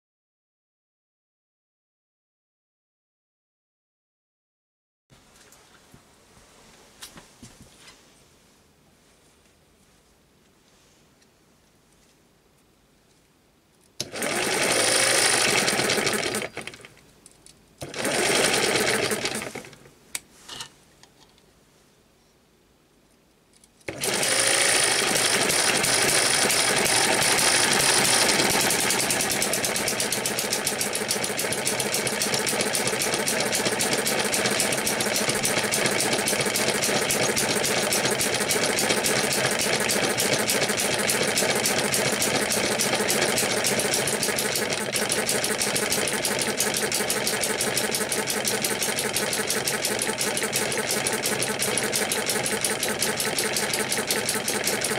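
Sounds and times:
electric starter motor spinning engine: 14.0s - 16.9s, 17.8s - 19.8s, 23.9s - 54.9s
engine running with fast ticking: 14.1s - 16.8s, 23.9s - 54.9s.

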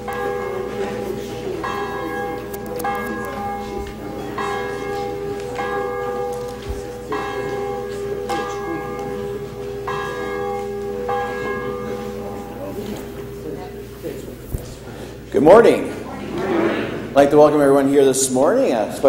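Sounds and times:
church bell tolling: 0.0s - 14.4s.

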